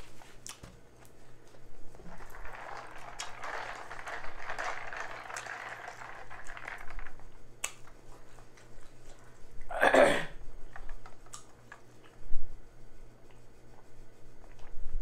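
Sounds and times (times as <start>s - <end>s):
plastic tumbler contents rattling: 2.0s - 8.4s.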